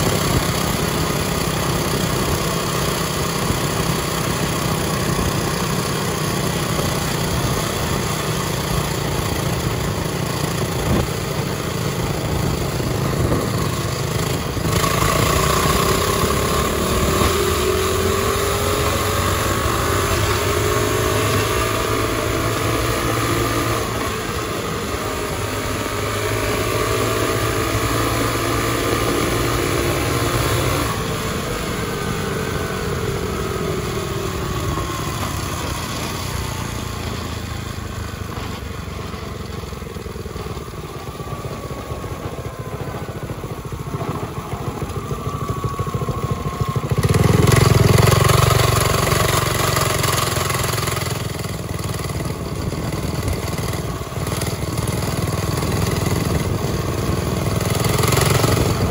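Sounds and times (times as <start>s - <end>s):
small bike engine running hard: 0.0s - 58.9s
wind rushing over microphone: 9.0s - 19.6s, 40.4s - 49.3s.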